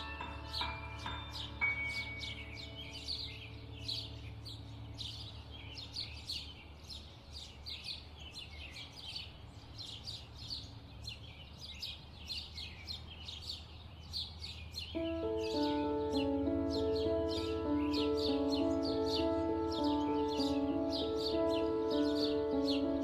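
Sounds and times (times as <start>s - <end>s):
low steady hum: 0.0s - 11.6s
birds chirping: 0.0s - 23.0s.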